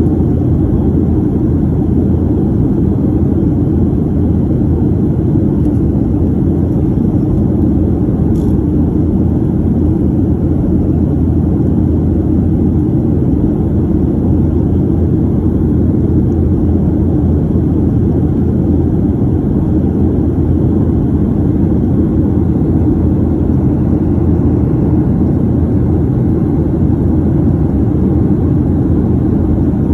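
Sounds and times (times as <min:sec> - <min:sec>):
airliner cabin engine rumble: 0:00.0 - 0:29.9.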